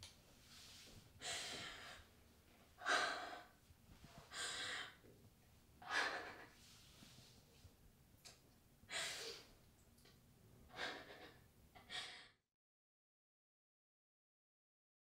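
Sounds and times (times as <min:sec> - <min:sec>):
woman breathing heavily in gasps: 0:01.2 - 0:02.2, 0:02.8 - 0:05.1, 0:05.8 - 0:06.8, 0:08.9 - 0:09.6, 0:10.7 - 0:12.4.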